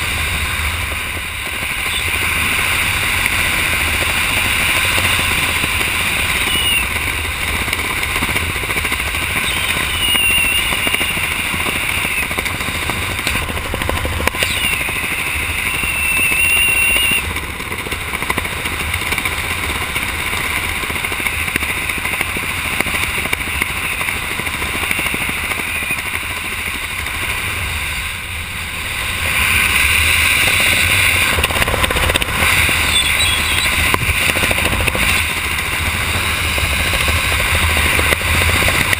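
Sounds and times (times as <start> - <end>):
wind rushing over microphone: 0.0 - 38.9
faint high whistles: 6.4 - 6.9, 9.4 - 12.3, 14.4 - 17.3, 32.9 - 33.8.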